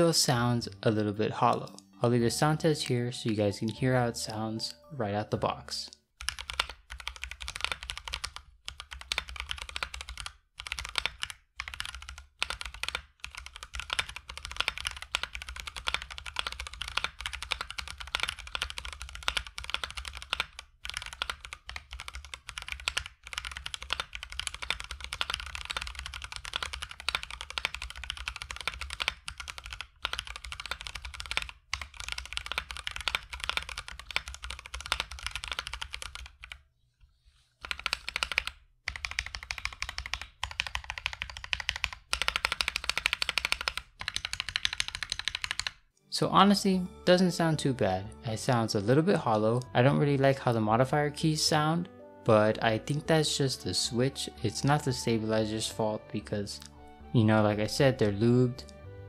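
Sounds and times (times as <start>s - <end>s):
mechanical keyboard typing: 6.2s - 36.6s, 37.6s - 45.8s.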